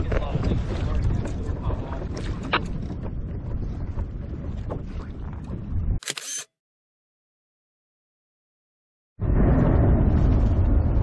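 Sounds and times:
wind buffeting microphone: 0:00.0 - 0:06.0, 0:09.2 - 0:11.0.

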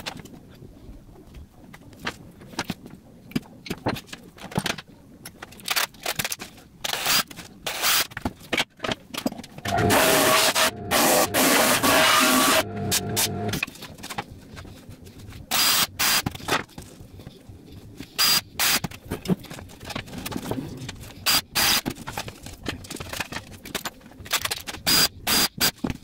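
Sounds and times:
cordless drill boring: 0:09.7 - 0:13.5
power tool running: 0:09.7 - 0:13.6.

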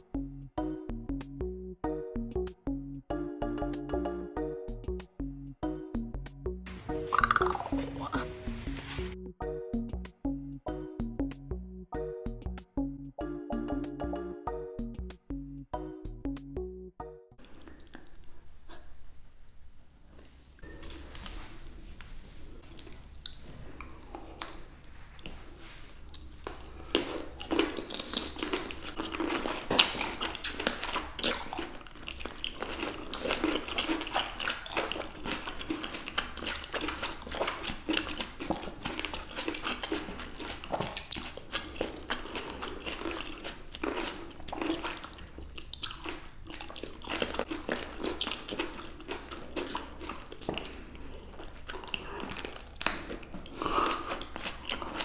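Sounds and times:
people chewing juicy grapes: 0:06.9 - 0:09.2, 0:17.4 - 0:19.2, 0:20.6 - 0:55.0.

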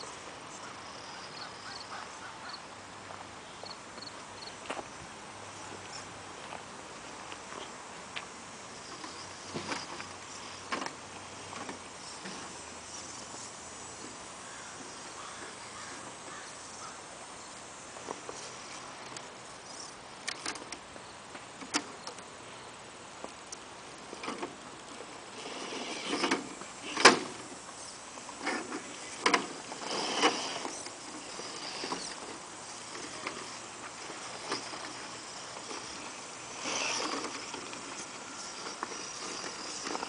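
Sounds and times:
small electric motor whining: 0:24.1 - 0:40.0.

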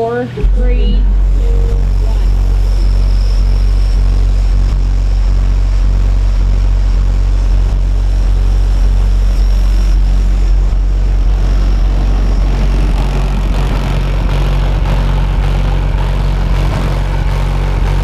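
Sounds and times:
deep bass note from subwoofers: 0:00.0 - 0:18.0.

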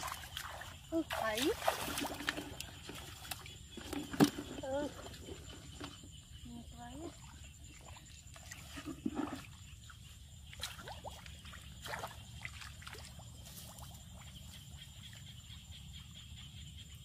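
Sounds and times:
muddy water splashing: 0:00.0 - 0:15.3.

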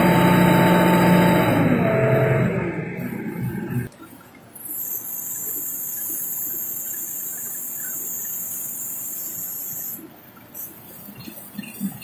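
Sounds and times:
high-pitched hiss: 0:04.6 - 0:11.7.

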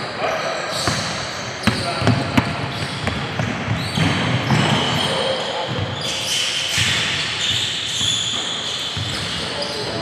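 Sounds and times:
basketball bouncing on hardwood: 0:09.0 - 0:09.4.

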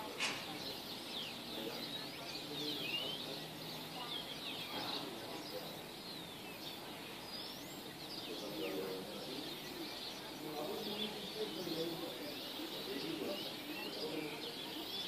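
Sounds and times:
small birds chirping: 0:00.0 - 0:15.0
sharp click: 0:00.2 - 0:00.5.

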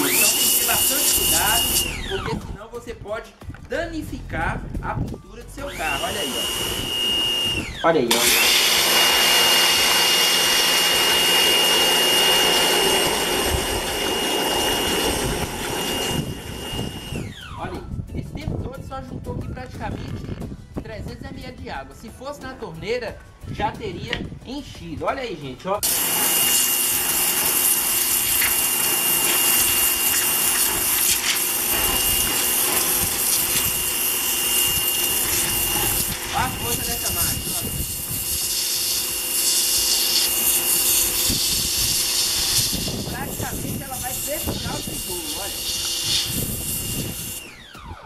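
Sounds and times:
water jet spraying into cup: 0:00.0 - 0:02.5, 0:05.6 - 0:17.3, 0:25.8 - 0:47.6
pressure washer motor whine: 0:00.0 - 0:02.6, 0:05.6 - 0:17.6, 0:25.8 - 0:48.0.

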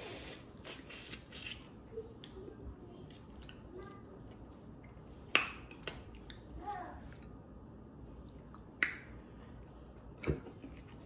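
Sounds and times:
sucking sauce off fingers: 0:00.0 - 0:01.8
lip smacks: 0:05.2 - 0:07.3
person chewing wetly: 0:05.6 - 0:07.4.

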